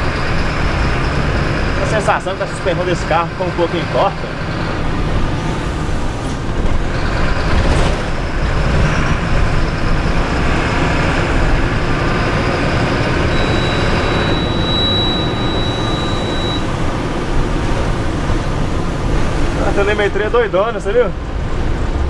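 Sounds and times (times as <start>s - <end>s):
bus diesel engine running: 0.0s - 22.0s
road noise: 0.0s - 22.0s
steady high beep: 13.1s - 16.8s.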